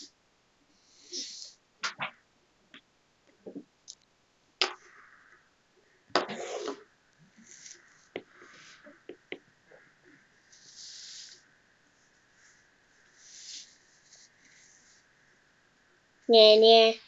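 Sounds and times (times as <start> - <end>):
breathy hisses: 9.9 - 11.5, 12.4 - 15.0.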